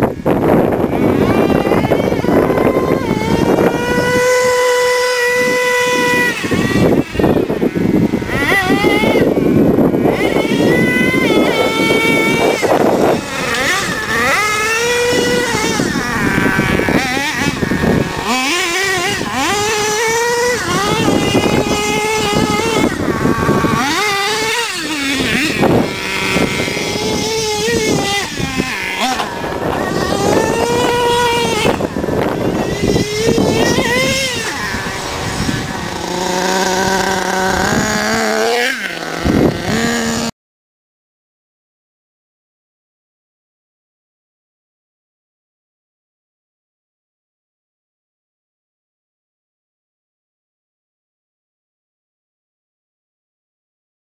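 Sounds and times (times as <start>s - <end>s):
model truck engine revving: 0.3s - 40.3s.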